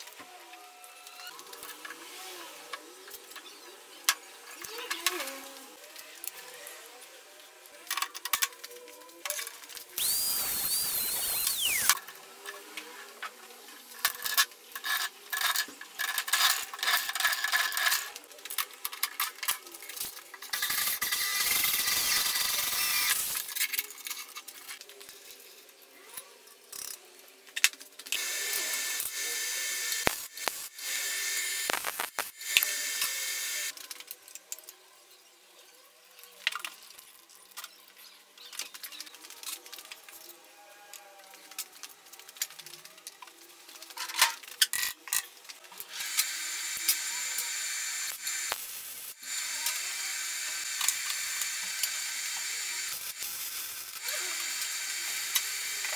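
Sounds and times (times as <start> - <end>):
electric drill boring metal: 10.0 - 12.0, 20.6 - 23.5, 28.2 - 33.7, 45.8 - 55.9.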